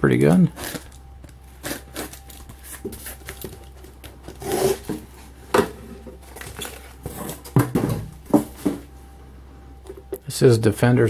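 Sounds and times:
tape ripping from cardboard: 1.6s - 3.5s, 4.3s - 5.0s.

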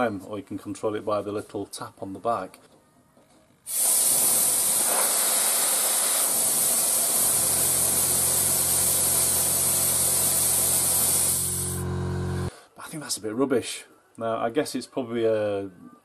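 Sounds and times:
compressed air hissing: 3.7s - 11.9s
low hum: 11.4s - 12.5s.

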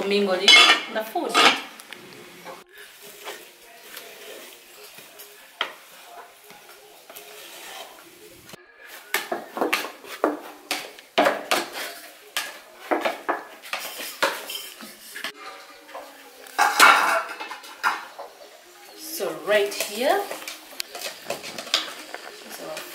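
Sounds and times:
pots and plates clattering: 0.4s - 1.7s, 9.1s - 18.5s, 20.9s - 22.9s
wooden stick scraping a pot: 7.1s - 8.0s.

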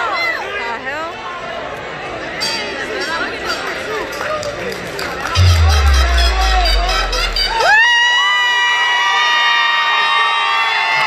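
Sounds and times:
bass-heavy arena music: 5.4s - 7.7s.

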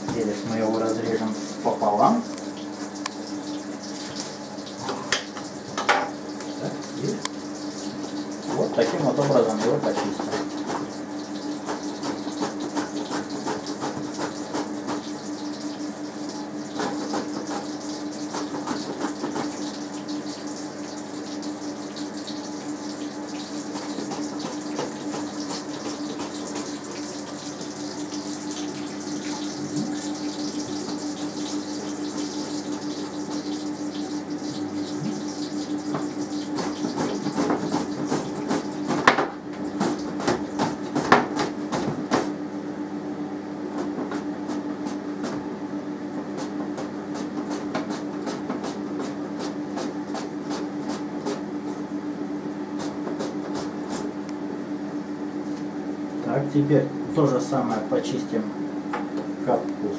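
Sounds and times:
steady hum: 0.0s - 46.5s.

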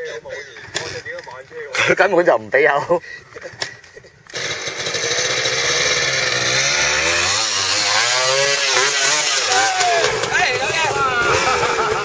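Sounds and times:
dirt bike engine revving: 4.3s - 12.0s.

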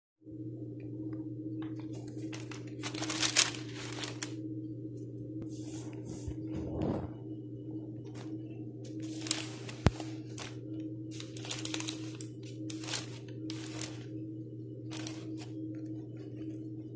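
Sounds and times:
steady low hum: 0.2s - 16.9s
crinkly rustling handling noises: 1.7s - 4.4s, 8.1s - 14.2s, 14.9s - 16.8s.

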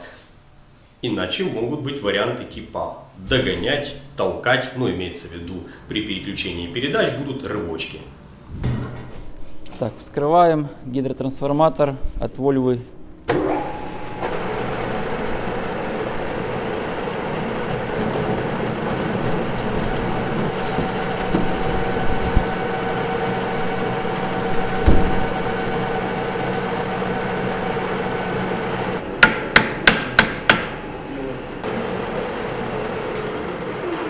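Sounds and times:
metal lathe machining hum: 13.3s - 29.7s, 30.7s - 34.0s
sharp knocks: 29.2s - 30.8s.

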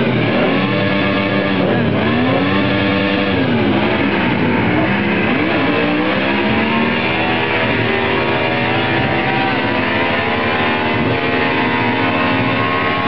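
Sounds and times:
van engine at high revs: 0.0s - 13.0s.

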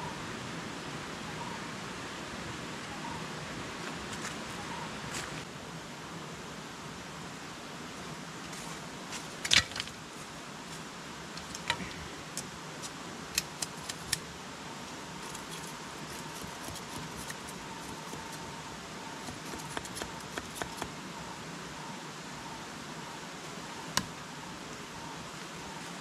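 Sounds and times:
steady outdoor hiss: 0.0s - 26.0s.

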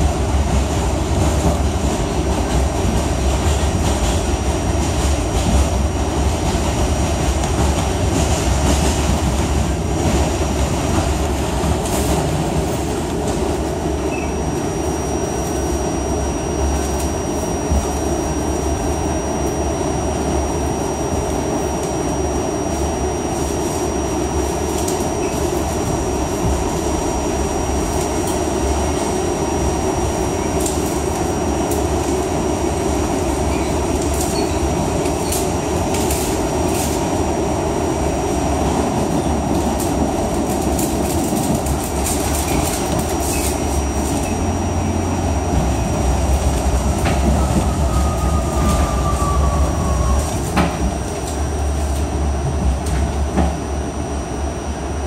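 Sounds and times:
subway car wheels rumbling: 0.0s - 55.0s
thin high whine: 13.6s - 37.3s, 39.0s - 52.4s.

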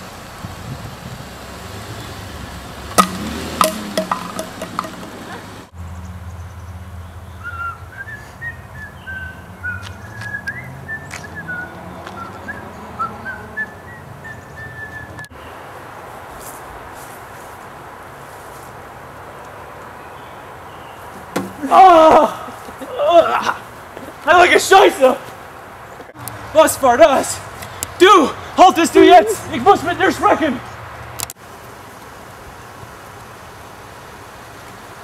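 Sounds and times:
sharp knocks and clicks: 3.0s - 5.4s
person whistling a tune: 7.5s - 15.3s.

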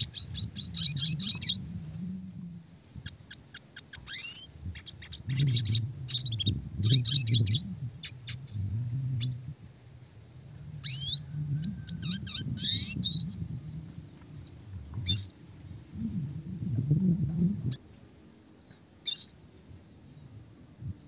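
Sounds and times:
bird chirping and trilling: 0.0s - 1.6s, 3.0s - 9.5s, 10.8s - 15.4s, 18.6s - 19.4s.

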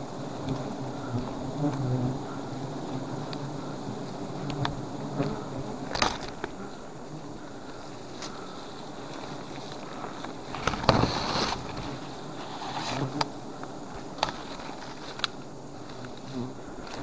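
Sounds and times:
bees buzzing: 0.0s - 17.0s
palm fronds rustling: 0.0s - 17.0s
sharp clicks of fronds: 4.1s - 6.6s, 7.6s - 17.0s.

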